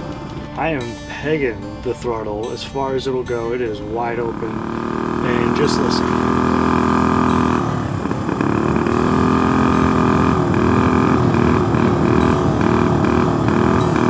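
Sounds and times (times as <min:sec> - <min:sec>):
minibike engine sputtering at full throttle: 0:03.4 - 0:14.0.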